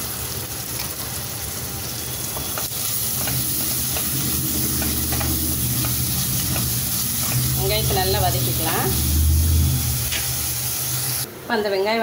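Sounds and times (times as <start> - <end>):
onions sizzling in hot oil: 0.0 - 11.3
spoon scraping metal pot: 2.7 - 10.4
low steady hum: 2.7 - 11.3.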